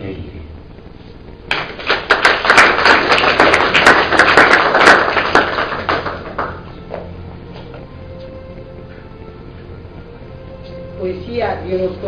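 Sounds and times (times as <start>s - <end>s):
audience applauding: 1.5s - 6.7s.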